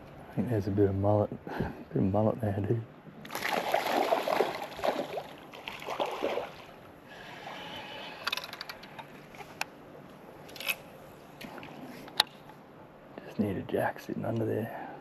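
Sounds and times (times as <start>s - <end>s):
water lapping against boat hull: 3.3s - 6.8s.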